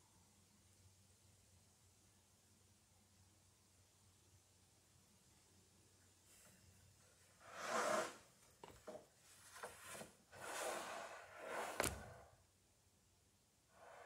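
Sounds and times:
wooden planks scraping: 7.4 - 8.2, 9.3 - 12.2.

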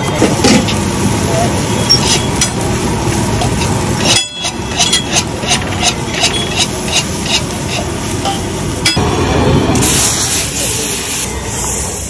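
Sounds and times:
food sizzling on a griddle: 9.8 - 12.0.

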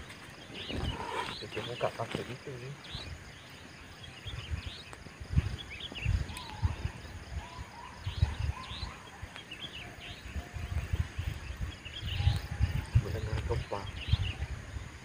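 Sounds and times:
birds chirping: 0.0 - 15.0
wind rumbling on microphone: 0.0 - 15.0
whistled bird notes: 5.5 - 10.9, 11.8 - 14.4.

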